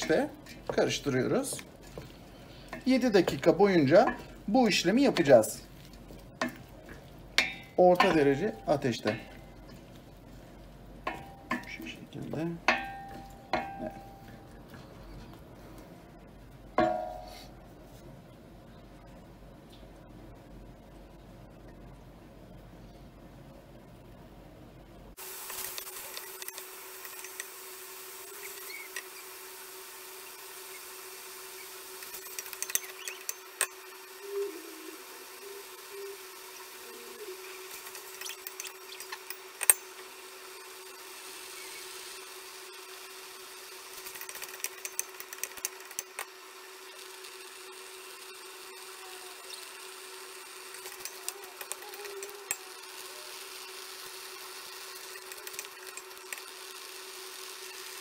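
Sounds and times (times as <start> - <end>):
steady low hum: 0.0 - 25.2.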